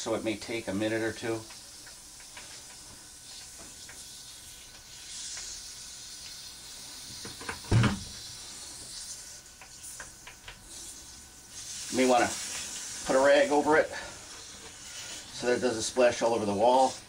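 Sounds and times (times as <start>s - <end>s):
dull thump: 7.7s - 8.1s.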